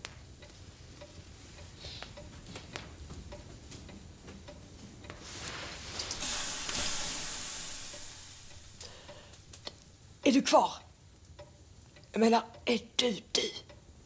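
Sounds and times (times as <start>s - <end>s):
light ticking: 0.0s - 5.2s, 6.0s - 13.9s
long hissing rush: 5.3s - 9.5s.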